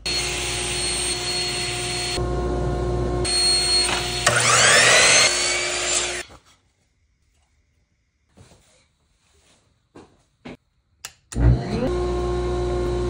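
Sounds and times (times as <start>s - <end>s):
table saw whining: 0.0s - 6.2s, 11.4s - 13.0s
miter saw spinning up: 3.3s - 6.2s.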